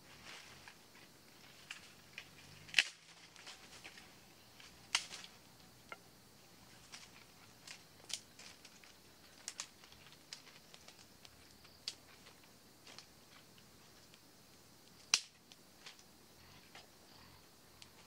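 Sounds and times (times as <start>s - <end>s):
small wood cracking: 1.4s - 6.0s, 6.7s - 14.2s, 14.9s - 16.1s
sharp wood snap: 2.6s - 3.9s, 4.9s - 6.0s, 14.9s - 15.4s.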